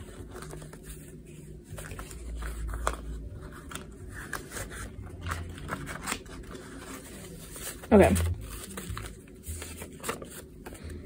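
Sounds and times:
banknotes rustling: 0:00.0 - 0:11.0.

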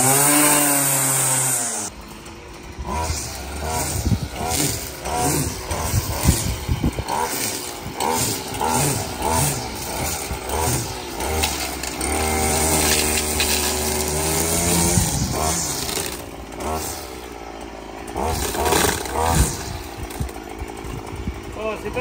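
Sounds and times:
string trimmer engine revving: 0:00.0 - 0:22.0.

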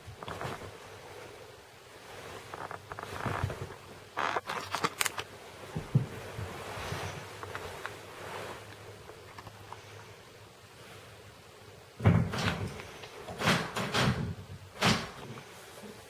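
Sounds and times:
duvet rustling: 0:00.0 - 0:11.4
camera handling noise: 0:04.2 - 0:05.3.

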